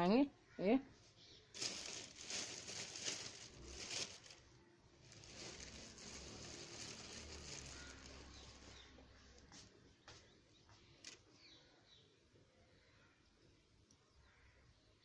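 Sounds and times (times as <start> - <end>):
yarn and cloth rustling: 1.0 - 10.4.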